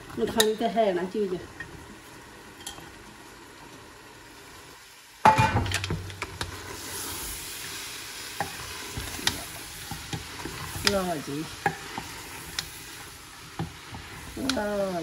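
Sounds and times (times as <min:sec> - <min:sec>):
vegetables sizzling in oil: 0:00.0 - 0:15.0.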